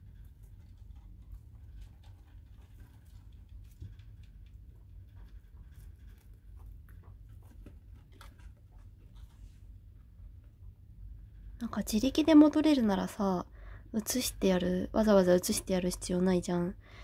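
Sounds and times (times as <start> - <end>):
low steady hum: 0.0 - 17.0
rabbit rustling on bedding: 0.2 - 9.8.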